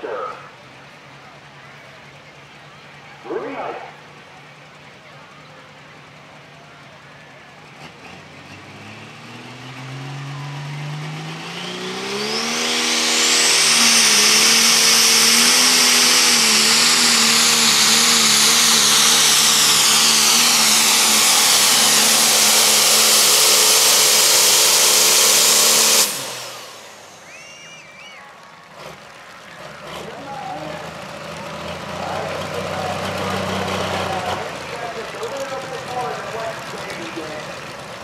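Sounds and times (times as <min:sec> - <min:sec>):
tractor diesel engine revving: 0:00.0 - 0:38.0
turbo whine: 0:07.2 - 0:28.3.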